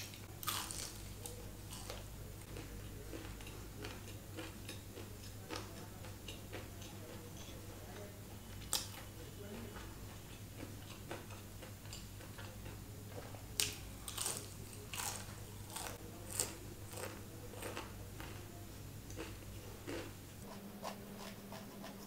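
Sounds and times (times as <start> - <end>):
chewing crispy fried chicken: 0.0 - 18.5, 19.1 - 20.2.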